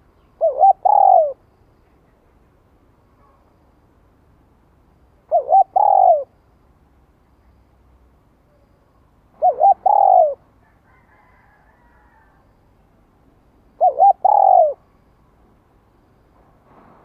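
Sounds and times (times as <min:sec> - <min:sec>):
dove cooing: 0:00.4 - 0:01.4, 0:05.3 - 0:06.3, 0:09.3 - 0:12.2, 0:13.8 - 0:14.9.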